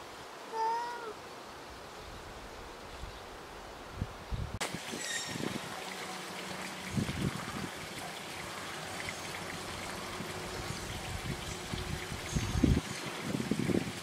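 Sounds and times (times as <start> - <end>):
outdoor background hiss: 0.0 - 14.0
wind buffeting microphone: 3.9 - 5.8, 6.8 - 8.0, 10.1 - 14.0.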